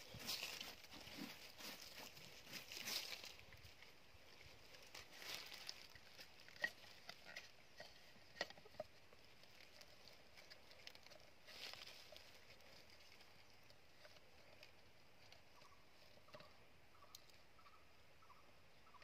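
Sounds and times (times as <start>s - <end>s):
soft rustling: 0.0s - 16.4s
bamboo sticks clicking: 5.0s - 8.9s.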